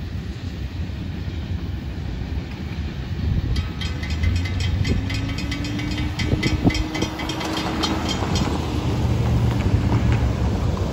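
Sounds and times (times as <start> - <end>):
road traffic rumble: 0.0 - 10.9
railroad crossing bell ringing: 3.5 - 9.5.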